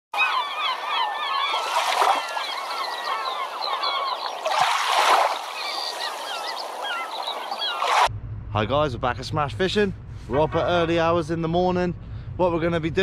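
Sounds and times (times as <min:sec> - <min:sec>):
flock of birds calling: 0:00.2 - 0:08.1.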